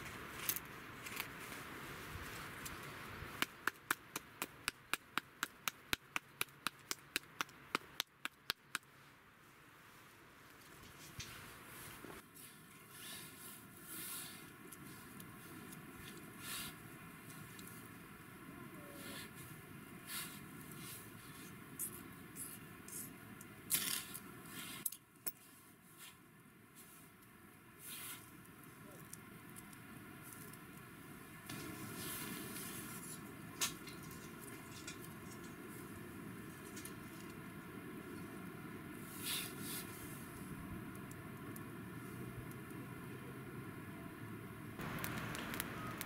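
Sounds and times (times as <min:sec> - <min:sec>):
sharp light clicks: 0:44.8 - 0:46.0.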